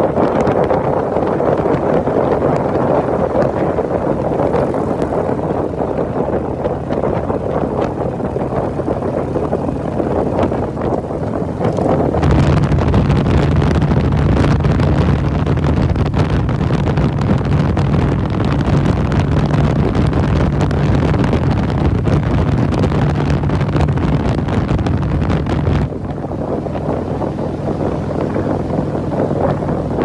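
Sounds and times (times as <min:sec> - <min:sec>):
motorcycle engine running: 0:00.0 - 0:30.0
wind noise on microphone: 0:00.0 - 0:30.0.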